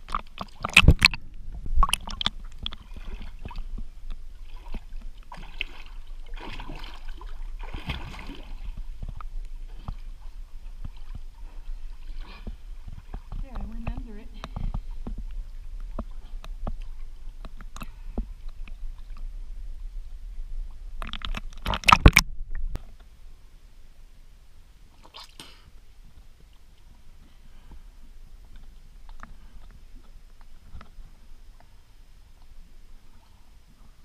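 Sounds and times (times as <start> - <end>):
water sloshing and splashing: 0.0 - 19.9, 20.6 - 23.0
faint water lapping: 0.0 - 23.5, 24.8 - 34.0.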